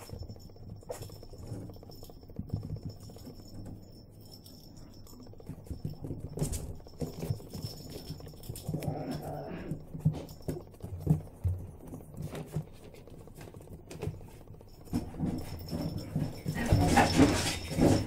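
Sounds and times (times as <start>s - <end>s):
puppy claws clicking on tiles: 0.0s - 18.0s.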